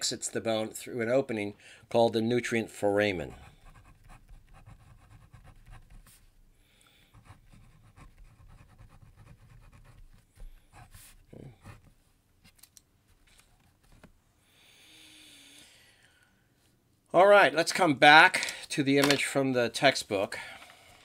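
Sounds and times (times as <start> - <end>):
pen scratching on paper: 3.2 - 6.2, 7.1 - 11.9.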